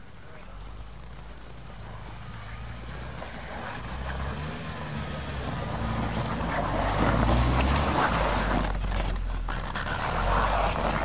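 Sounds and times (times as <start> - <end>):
tyres on packed snow: 0.0 - 11.0
suv engine passing: 0.4 - 11.0.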